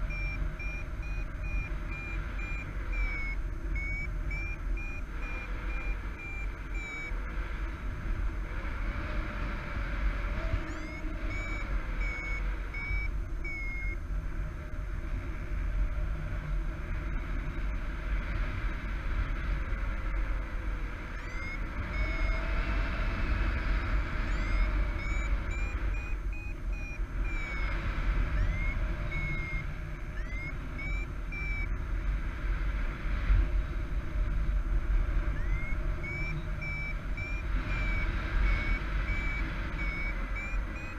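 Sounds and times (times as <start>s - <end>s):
variometer beeping: 0.0s - 7.8s, 10.3s - 14.2s, 19.5s - 31.9s, 35.0s - 40.9s.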